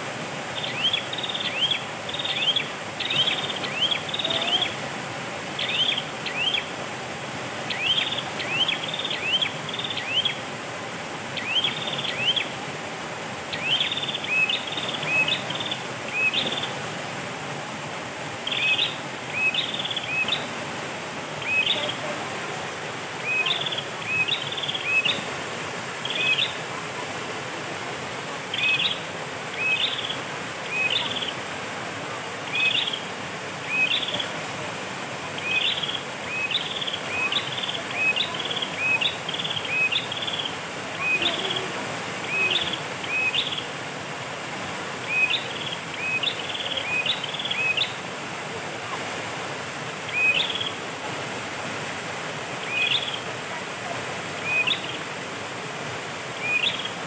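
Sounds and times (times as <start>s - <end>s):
stream rushing: 0.0s - 57.0s
bird chirping: 0.6s - 4.7s, 5.6s - 6.7s, 13.5s - 16.7s, 52.7s - 53.2s.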